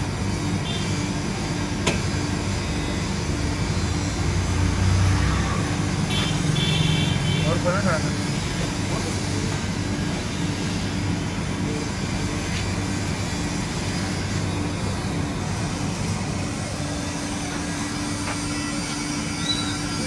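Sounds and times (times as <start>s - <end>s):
electric air blower running: 0.0s - 20.0s.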